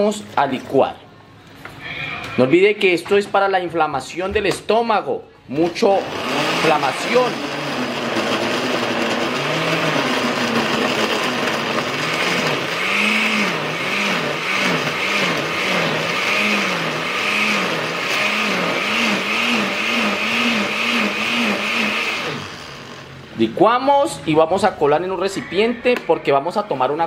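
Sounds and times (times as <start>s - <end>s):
blender motor running: 5.7s - 23.3s.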